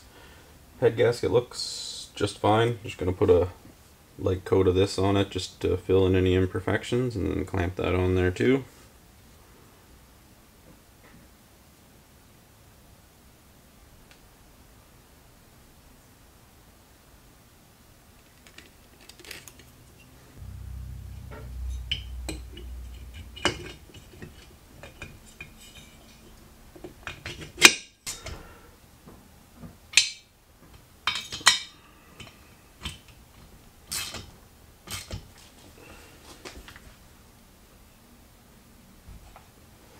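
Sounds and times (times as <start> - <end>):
low rumble: 20.3 - 25.5
metal parts and tools clinking: 21.3 - 28.3, 31.0 - 33.1.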